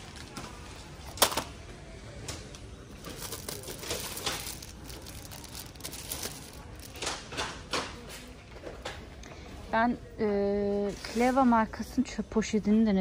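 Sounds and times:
packaging crinkling: 0:03.0 - 0:07.2.

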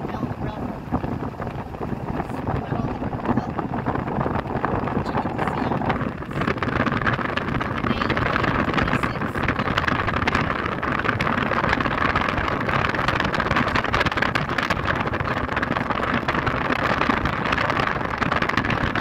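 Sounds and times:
vehicle road and wind noise: 0:00.0 - 0:19.0.

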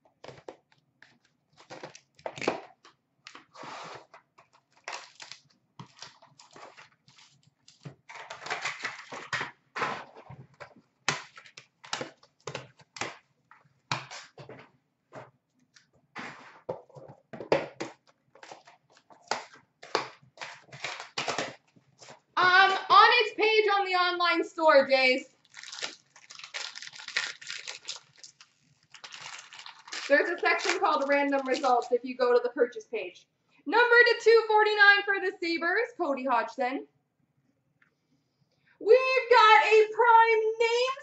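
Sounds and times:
packaging rustling: 0:00.2 - 0:22.3, 0:25.4 - 0:32.0.

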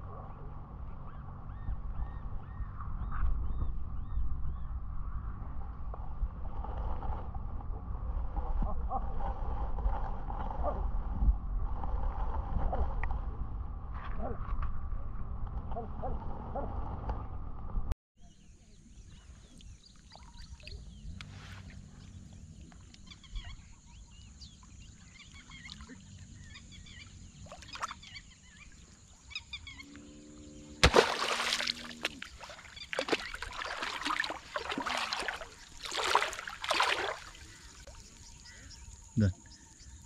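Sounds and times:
feet splashing through shallow water: 0:30.8 - 0:38.1
faint chirps: 0:31.8 - 0:40.0.

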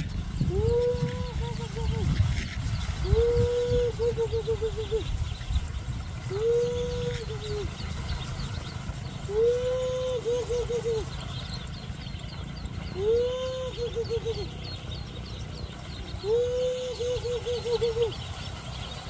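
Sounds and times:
young birds peeping: 0:00.0 - 0:19.0.

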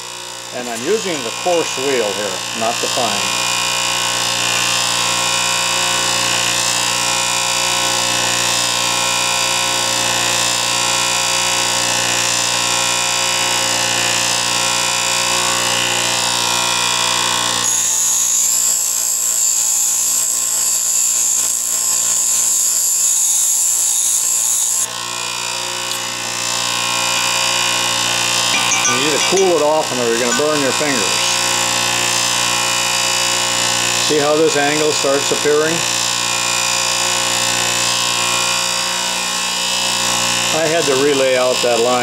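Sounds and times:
bench grinder motor whine: 0:00.0 - 0:42.0
metal grinding hiss: 0:17.7 - 0:24.9, 0:28.3 - 0:31.6.

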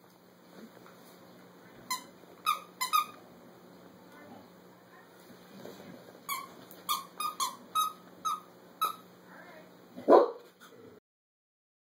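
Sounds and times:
squeaky dog toy squeaking: 0:01.9 - 0:03.2, 0:06.3 - 0:09.0.

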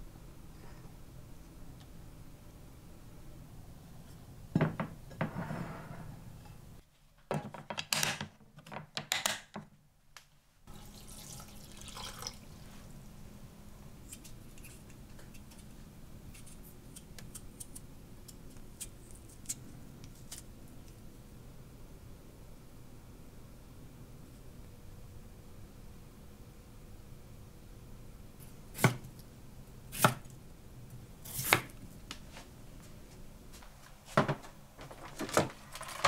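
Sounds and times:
water pouring into container: 0:10.7 - 0:12.7.

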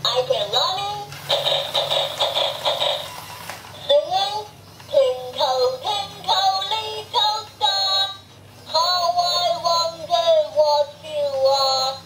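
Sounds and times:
synthetic child-like singing voice: 0:00.0 - 0:01.1, 0:03.8 - 0:12.0.

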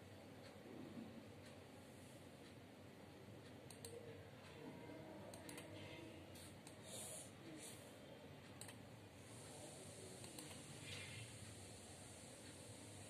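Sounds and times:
computer mouse clicks: 0:03.4 - 0:04.1, 0:05.3 - 0:07.0, 0:08.5 - 0:13.0
keyboard clicks: 0:03.7 - 0:04.0, 0:05.3 - 0:05.8.

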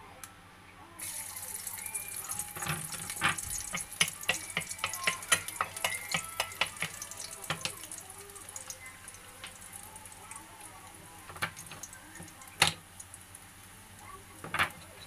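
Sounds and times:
garlic sizzling in a pan: 0:01.0 - 0:15.0
wooden spatula tapping pan: 0:02.6 - 0:09.7.

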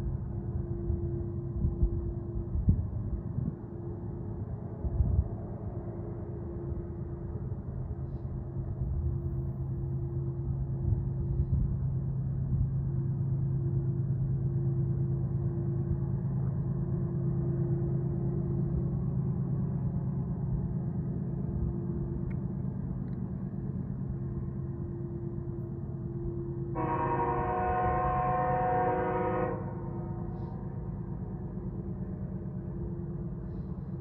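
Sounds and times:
diesel locomotives droning: 0:00.0 - 0:34.0
locomotive air horn chord: 0:26.7 - 0:30.9.

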